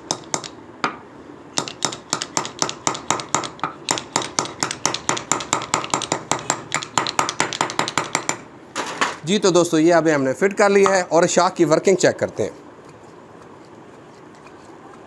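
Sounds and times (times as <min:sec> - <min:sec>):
hammer tapping on metal: 0:00.0 - 0:01.0, 0:01.6 - 0:08.4.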